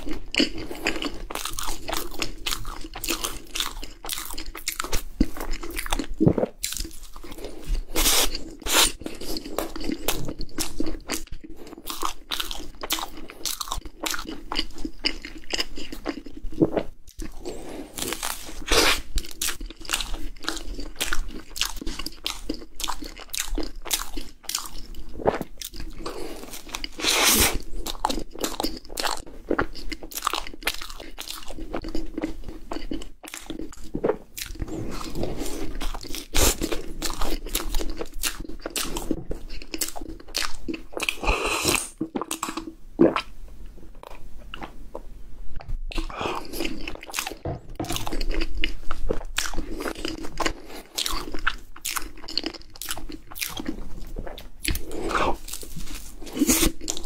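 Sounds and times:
chewing: 0:00.0 - 0:43.3, 0:45.9 - 0:57.0.

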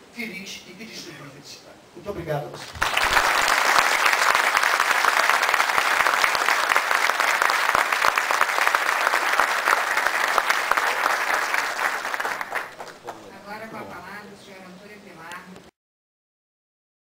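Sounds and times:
audience applauding: 0:02.6 - 0:13.3.

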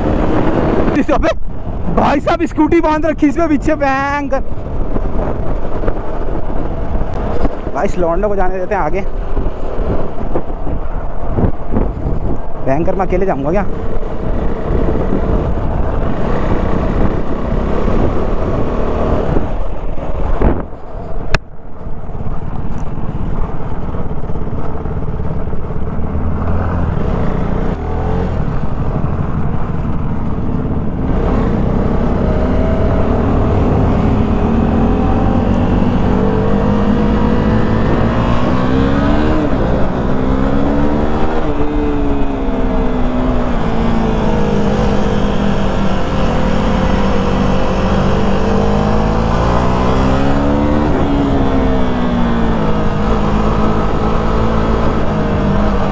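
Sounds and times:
motorcycle engine running: 0:03.9 - 0:55.9.

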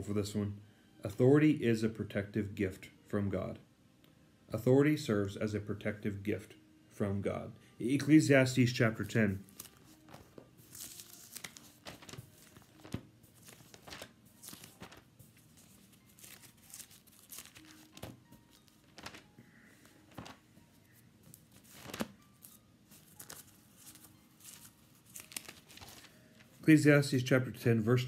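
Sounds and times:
thin pages rustling: 0:09.3 - 0:26.6.

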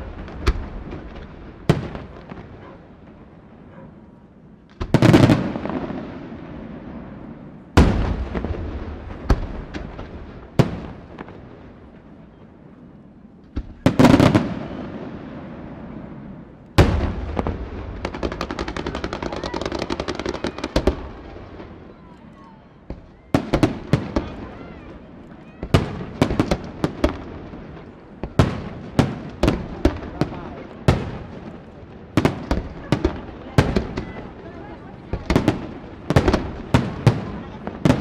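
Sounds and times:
fireworks booming with echo: 0:00.0 - 0:38.0
rapid firework cracks: 0:16.8 - 0:21.8, 0:25.5 - 0:38.0.

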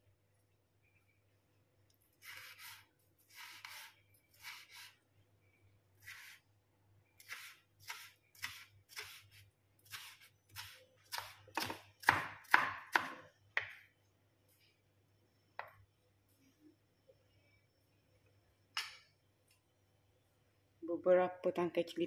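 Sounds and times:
knife chopping on wooden board: 0:09.9 - 0:13.8.

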